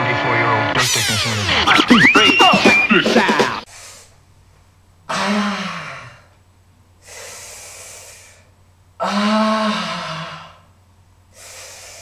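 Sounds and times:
man inhaling breathily: 7.0s - 8.5s, 11.3s - 12.0s.

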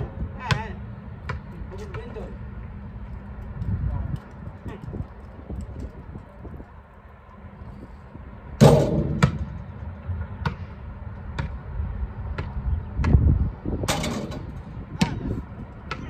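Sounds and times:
basketball bouncing on asphalt: 0.0s - 6.6s, 8.6s - 16.0s
loud bangs: 8.6s - 9.6s.

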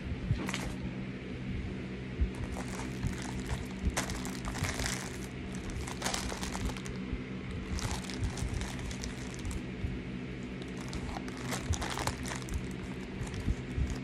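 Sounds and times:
steady low hum: 0.0s - 14.0s
plastic bag crinkling: 2.4s - 7.0s, 7.6s - 9.7s, 10.5s - 14.0s.

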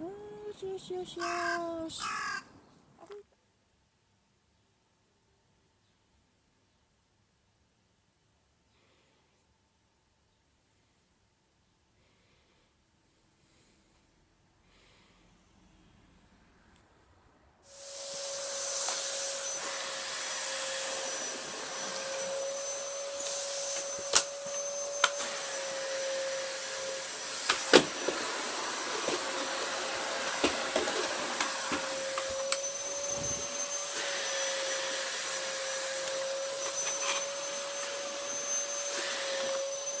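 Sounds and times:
vacuum cleaner running: 17.7s - 40.0s.

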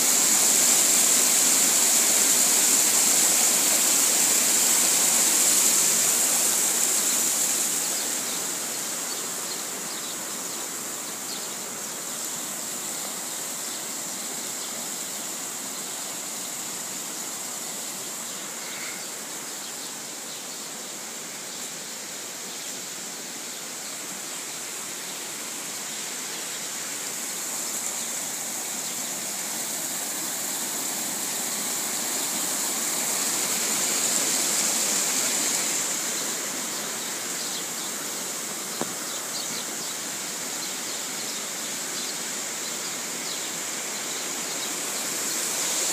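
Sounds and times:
water rushing through channels: 0.0s - 45.9s.

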